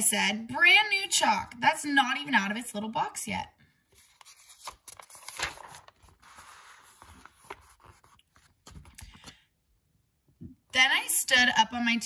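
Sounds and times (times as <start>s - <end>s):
paper rustling and crinkling: 3.9s - 9.4s.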